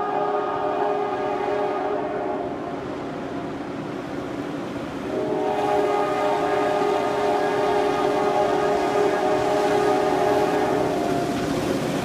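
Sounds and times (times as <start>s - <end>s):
train horn blasts: 0.0s - 2.8s, 5.1s - 11.5s.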